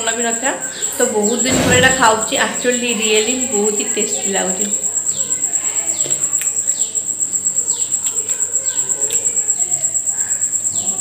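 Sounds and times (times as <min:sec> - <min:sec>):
pulsing insect trill: 0:00.0 - 0:11.0.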